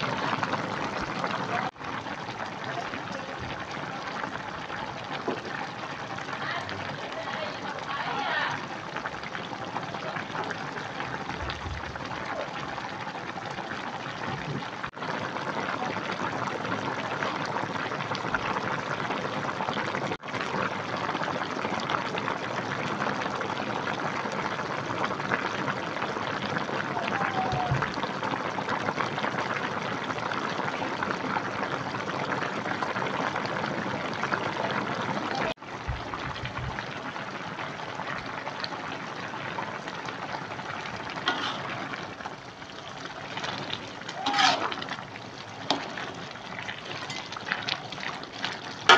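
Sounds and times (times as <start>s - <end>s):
soup boiling and bubbling: 0.0s - 48.9s.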